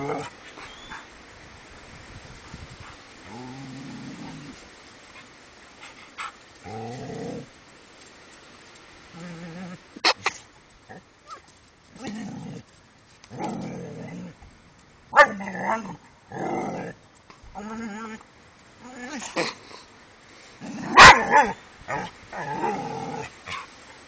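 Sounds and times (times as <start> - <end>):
dog growling: 3.2 - 4.6, 13.3 - 14.4, 15.2 - 18.2, 20.6 - 23.6.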